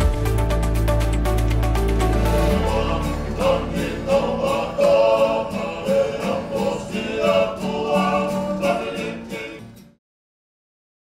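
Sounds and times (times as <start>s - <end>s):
strummed guitar and ukulele: 0.0s - 9.9s
men's choir singing in harmony: 2.2s - 10.0s.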